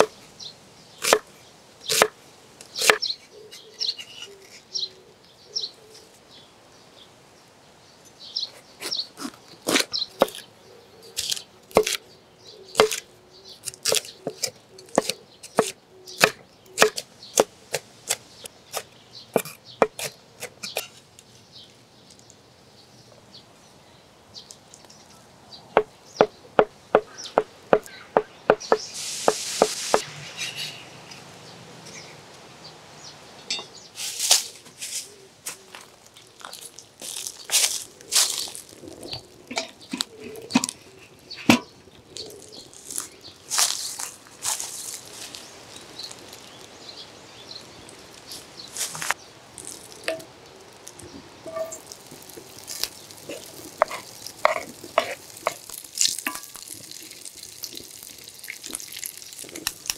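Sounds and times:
knife chopping on wooden board: 2.8s - 3.0s, 12.8s - 13.0s, 13.8s - 18.2s
brief rushing hiss: 28.8s - 30.4s.

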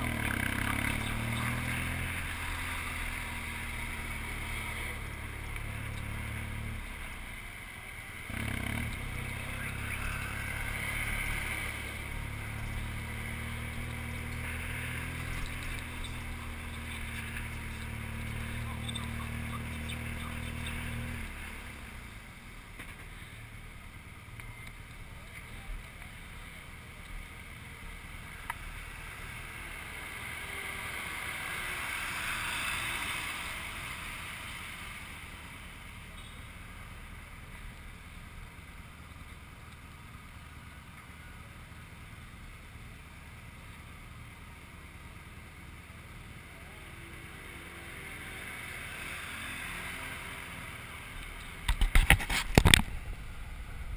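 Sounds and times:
vehicle passing: 0.0s - 22.5s, 28.0s - 35.7s, 46.6s - 51.6s
motorcycle engine: 0.0s - 53.9s
street traffic noise: 0.0s - 53.9s.

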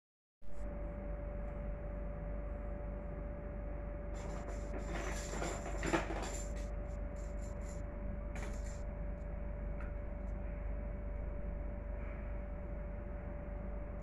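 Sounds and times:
room hum with constant tone: 0.4s - 14.0s.

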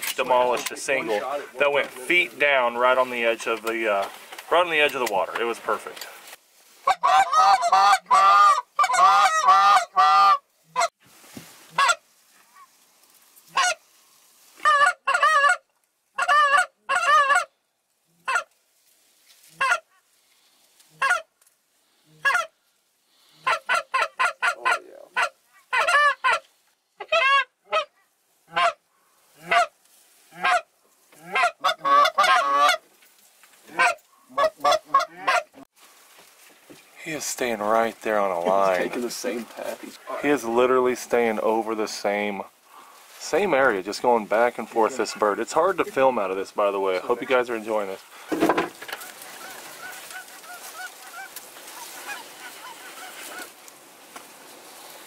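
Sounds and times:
goose honking and clucking: 6.8s - 11.0s, 11.6s - 12.8s, 13.5s - 13.8s, 14.5s - 17.6s, 18.2s - 18.6s, 19.5s - 20.0s, 20.9s - 21.3s, 22.0s - 22.6s, 23.2s - 32.9s, 33.6s - 35.7s, 44.2s - 53.6s.

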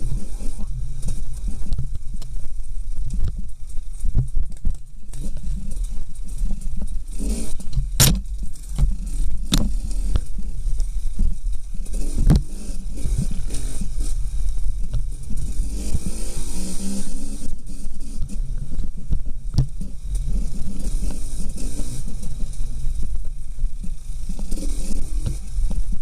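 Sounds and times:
dirt bike engine at low revs: 0.0s - 26.0s
wheels knocking on rocks: 0.0s - 26.0s.

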